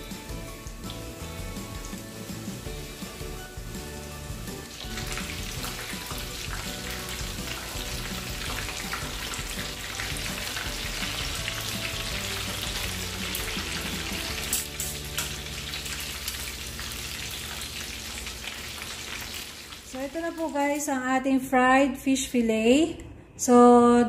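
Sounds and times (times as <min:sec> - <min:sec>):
fish deep-frying in oil: 0:00.0 - 0:20.9.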